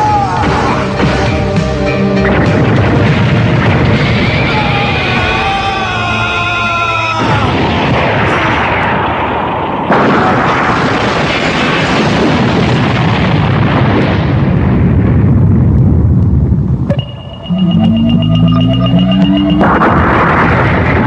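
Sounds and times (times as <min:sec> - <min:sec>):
energy blast explosion: 0:02.2 - 0:04.6, 0:07.2 - 0:15.6, 0:17.4 - 0:21.0.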